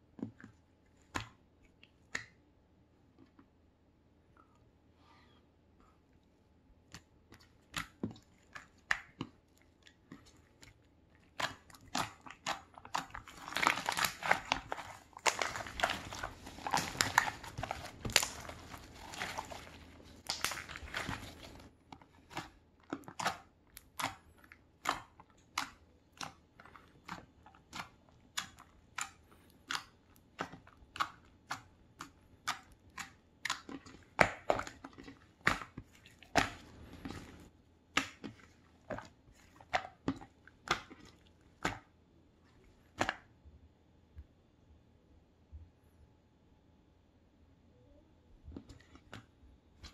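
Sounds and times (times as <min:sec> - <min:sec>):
fingers squishing sticky slime: 0:06.8 - 0:42.0.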